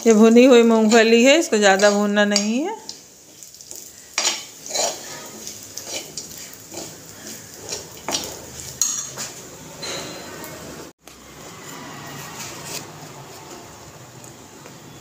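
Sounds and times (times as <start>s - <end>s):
metal spoon scraping a metal pan: 0.6s - 2.6s, 4.1s - 10.4s.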